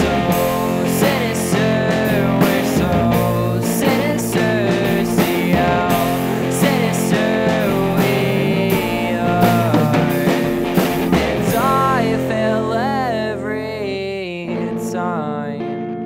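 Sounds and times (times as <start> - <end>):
rock song with guitar and drums: 0.0 - 16.0.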